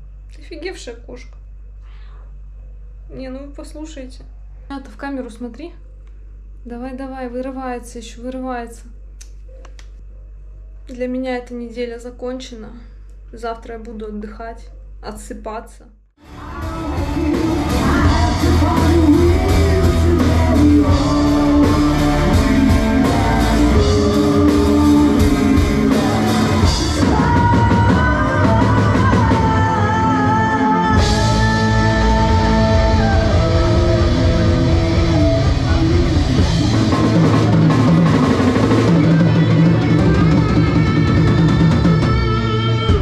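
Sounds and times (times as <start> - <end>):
electric guitar: 16.2 - 43.0
woman singing lead: 16.2 - 43.0
drum kit: 16.3 - 43.0.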